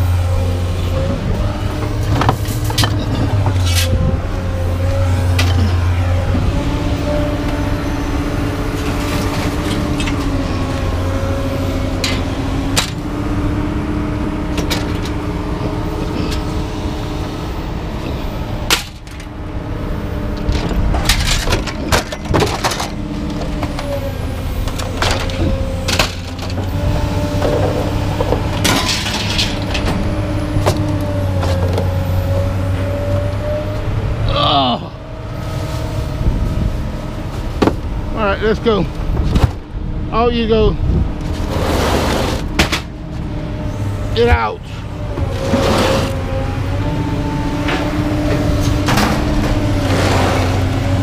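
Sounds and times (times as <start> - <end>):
vehicle engine running: 0.0 - 51.0
scrap metal clanking: 2.1 - 4.1, 20.4 - 23.9, 27.4 - 30.1.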